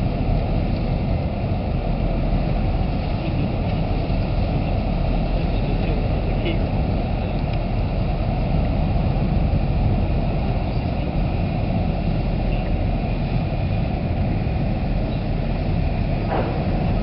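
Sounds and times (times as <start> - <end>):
ship engines rumbling: 0.0 - 17.0.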